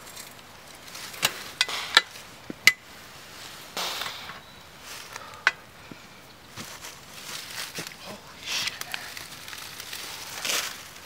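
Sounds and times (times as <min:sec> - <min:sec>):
dry leaves rustling: 0:00.0 - 0:11.0.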